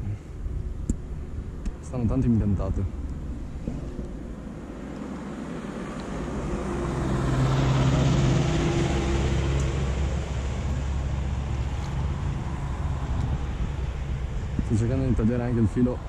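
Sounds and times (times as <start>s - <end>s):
passing vehicle engine drone: 0.0s - 16.0s.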